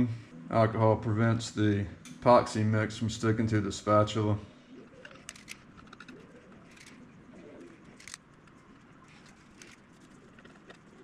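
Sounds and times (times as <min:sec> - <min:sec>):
faint low cooing calls: 0:04.5 - 0:11.0.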